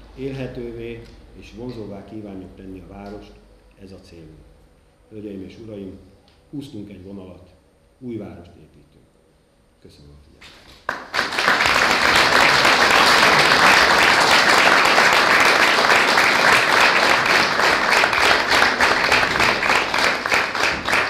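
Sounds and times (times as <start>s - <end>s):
people applauding: 10.8s - 21.0s.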